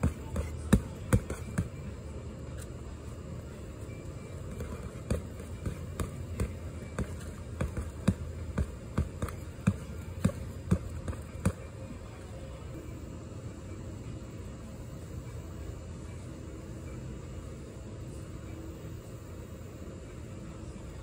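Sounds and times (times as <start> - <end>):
punches thudding on padding: 0.0 - 1.8, 4.5 - 11.7.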